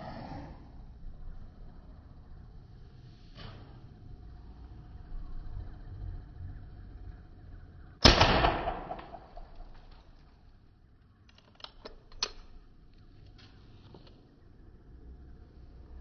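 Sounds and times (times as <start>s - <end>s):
handgun shot: 8.0s - 9.7s.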